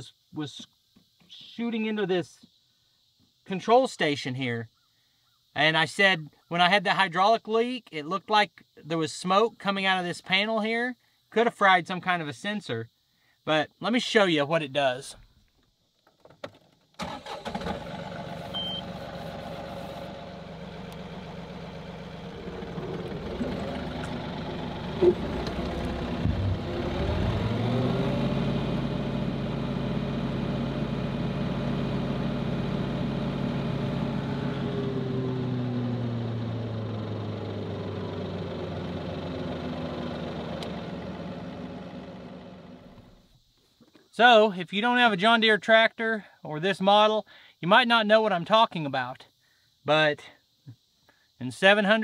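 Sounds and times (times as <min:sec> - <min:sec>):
tractor diesel engine: 0:17.0 - 0:43.2.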